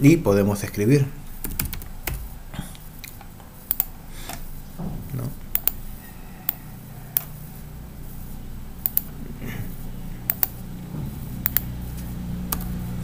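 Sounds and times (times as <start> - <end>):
steady low hum: 0.0 - 13.0
computer mouse clicking: 1.4 - 4.5, 5.5 - 5.8, 6.5 - 7.4, 8.8 - 9.2, 10.3 - 10.6, 11.4 - 11.7.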